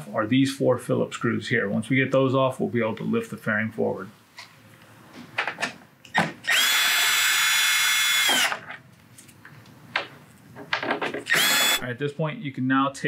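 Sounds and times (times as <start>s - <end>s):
cordless drill whining: 6.1s - 8.6s, 11.3s - 11.8s.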